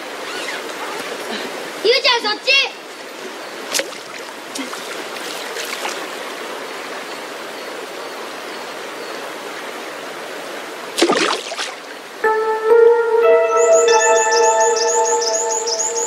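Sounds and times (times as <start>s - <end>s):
stream flowing over rocks: 2.8s - 7.9s, 9.3s - 12.2s
water splash: 3.7s - 6.2s, 10.9s - 12.0s.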